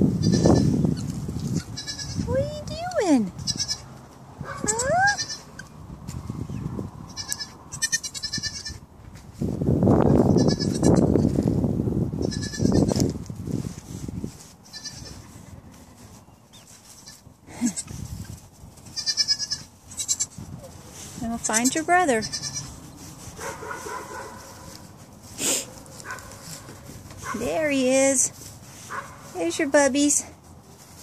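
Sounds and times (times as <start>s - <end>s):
goat kid bleating: 0.2s - 2.3s, 3.4s - 4.0s, 4.6s - 5.6s, 7.1s - 8.8s, 10.2s - 11.2s, 12.2s - 13.1s, 14.6s - 15.3s, 16.9s - 18.0s, 18.8s - 20.5s, 21.4s - 22.8s.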